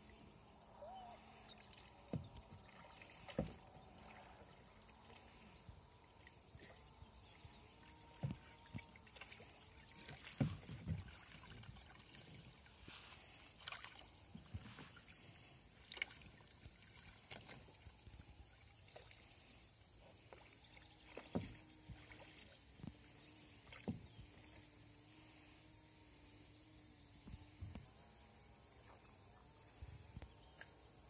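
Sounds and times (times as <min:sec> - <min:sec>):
paddle splashing in water: 0:00.9 - 0:24.6.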